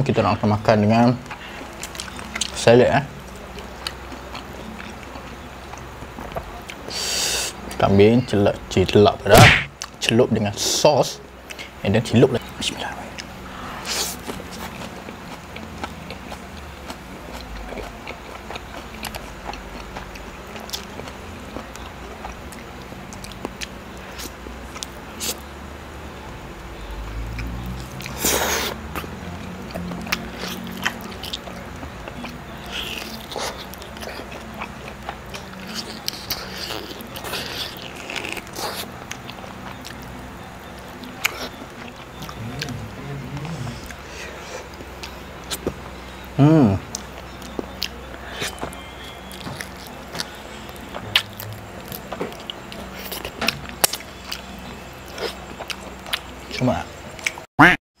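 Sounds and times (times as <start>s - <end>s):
chewing meat wet smacking: 13.9s - 25.4s, 27.3s - 44.0s, 46.9s - 57.5s.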